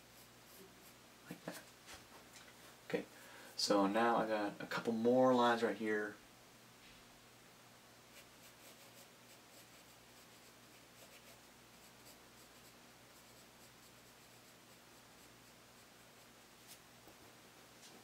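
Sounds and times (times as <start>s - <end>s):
pencil scratching on paper: 8.1s - 16.8s.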